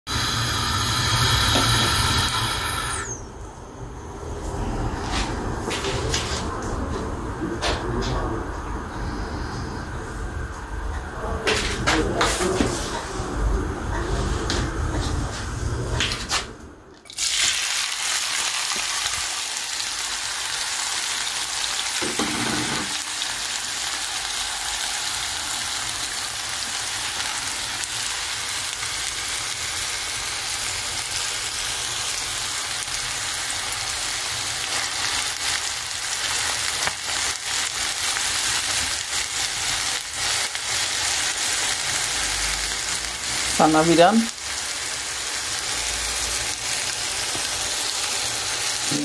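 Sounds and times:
onions sizzling in hot oil: 0.1 - 3.2, 17.1 - 49.0.

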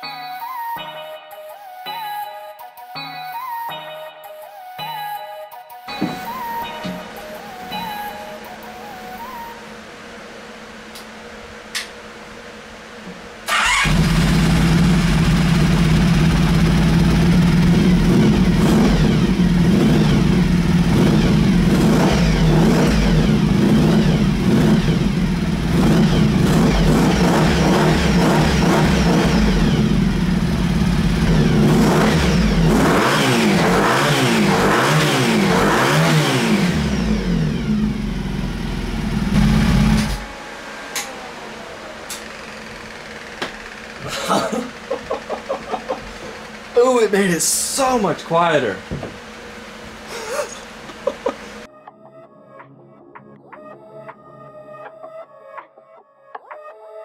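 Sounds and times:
motorcycle engine revving: 13.4 - 46.9.

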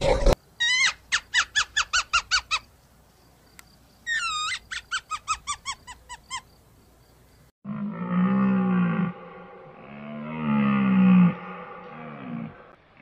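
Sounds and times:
low drawn-out animal call: 7.6 - 13.0.

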